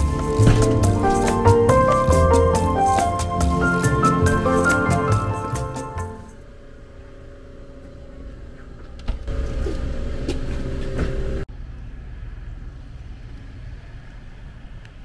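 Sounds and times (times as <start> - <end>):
outdoor background noise: 6.2 - 15.0.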